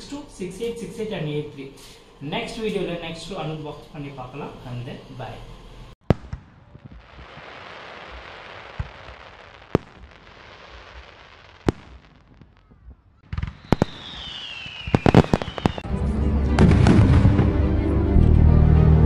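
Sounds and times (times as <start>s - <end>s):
fireworks cracks: 6.0s - 15.9s
fireworks bangs: 6.0s - 17.6s
fireworks hissing: 6.1s - 12.6s, 13.3s - 15.9s
falling whistle: 13.5s - 15.9s.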